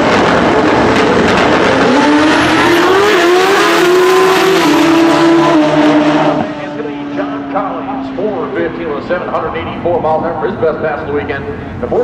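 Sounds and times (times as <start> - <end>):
racing motorcycles shifting gears: 0.0 - 8.3.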